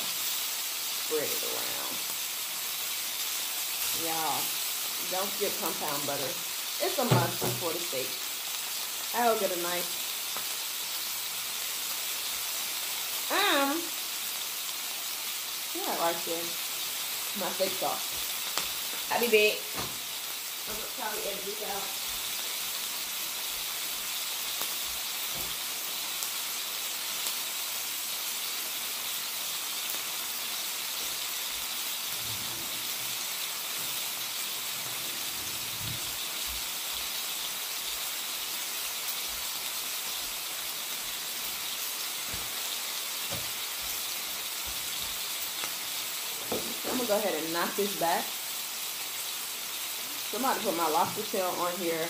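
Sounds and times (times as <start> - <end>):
steak sizzling on griddle: 0.0 - 52.0.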